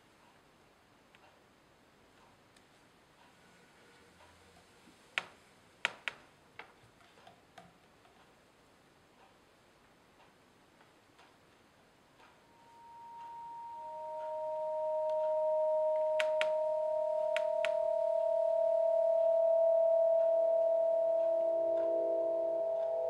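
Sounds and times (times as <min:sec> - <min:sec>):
sharp clicks: 0:12.2 - 0:18.6
electronic tones: 0:12.4 - 0:23.0.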